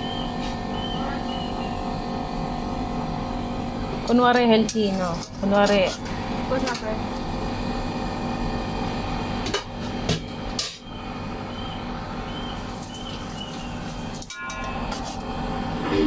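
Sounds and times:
steady background hum: 0:00.0 - 0:16.0
utensil clinking on ceramic plate: 0:14.2 - 0:15.2.

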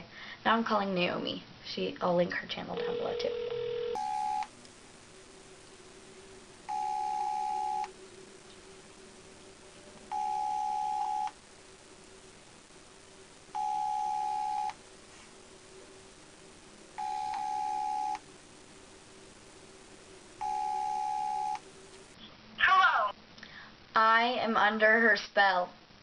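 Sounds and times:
phone ringback tone: 0:02.8 - 0:04.5, 0:06.7 - 0:07.9, 0:10.1 - 0:11.4, 0:13.5 - 0:14.8, 0:17.0 - 0:18.2, 0:20.4 - 0:21.6.

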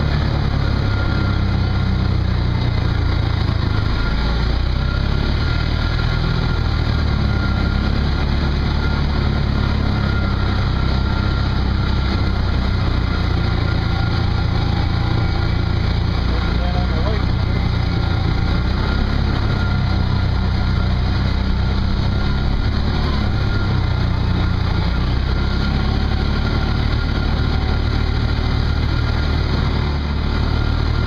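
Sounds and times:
off-road vehicle engine running: 0:00.0 - 0:31.0.

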